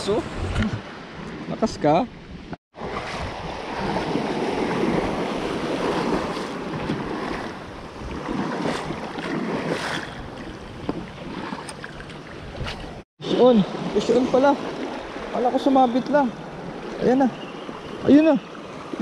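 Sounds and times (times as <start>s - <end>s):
wind noise on microphone: 0.0s - 1.5s, 2.1s - 13.0s.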